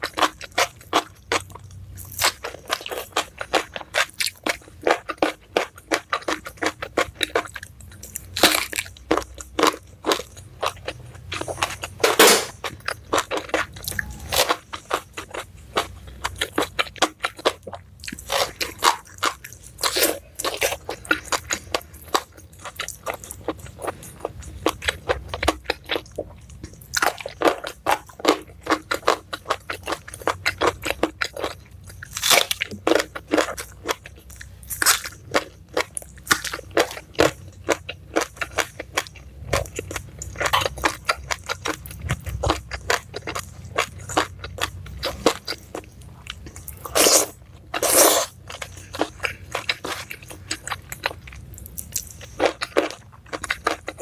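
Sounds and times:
crunching and chewing vegetables: 0:00.0 - 0:54.0.

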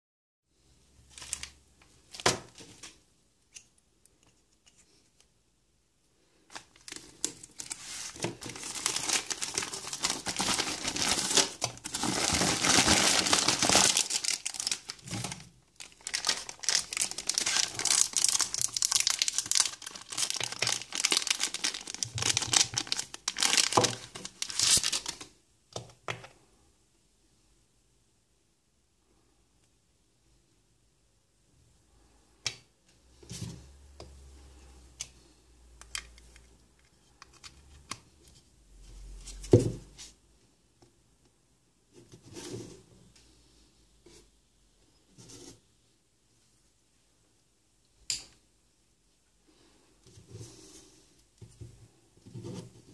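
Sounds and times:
plastic mailer bag crinkling: 0:06.7 - 0:25.3.

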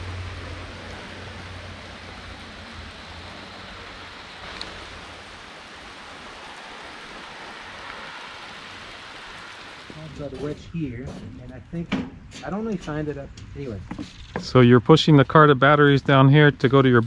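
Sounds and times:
low rumble: 0:00.0 - 0:07.7
rain falling: 0:00.0 - 0:11.8.

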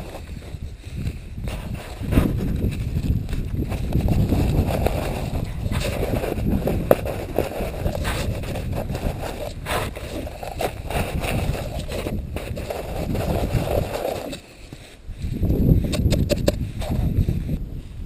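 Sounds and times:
snow crunching and scraping: 0:00.0 - 0:18.0
wind rumble on microphone: 0:00.0 - 0:18.0.

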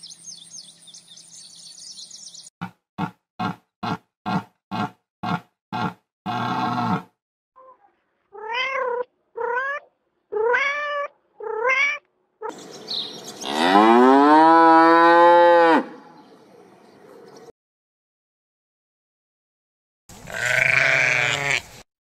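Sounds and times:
cow mooing: 0:03.0 - 0:07.1, 0:13.4 - 0:16.1
cat meowing: 0:07.6 - 0:12.1.

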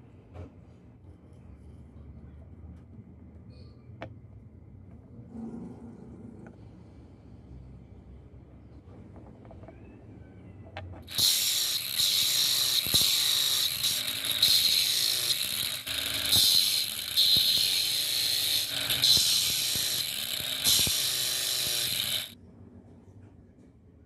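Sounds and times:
angle grinder grinding: 0:11.0 - 0:22.4.

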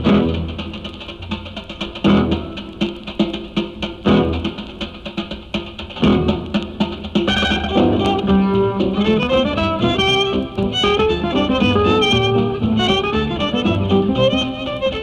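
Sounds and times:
held string notes: 0:00.0 - 0:15.0
steady drum beat: 0:00.0 - 0:15.0
quick plucked notes: 0:05.9 - 0:15.0.

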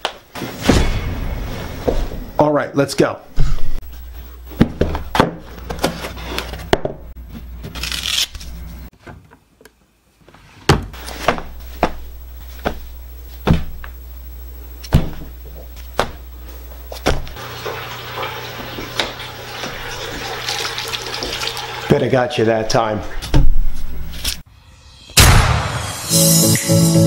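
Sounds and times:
sharp knocks and thumps: 0:12.6 - 0:13.9, 0:14.9 - 0:15.3, 0:17.0 - 0:17.4.

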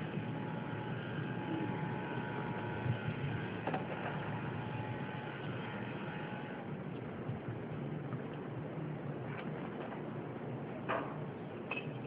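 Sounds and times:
mechanical hum with whine: 0:00.0 - 0:12.0.

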